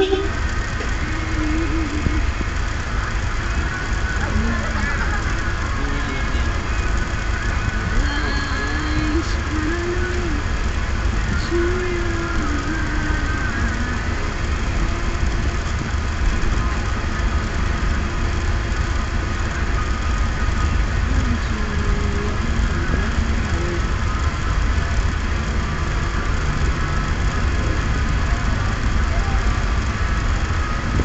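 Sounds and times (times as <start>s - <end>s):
van engine and road rumble: 0.0s - 31.0s.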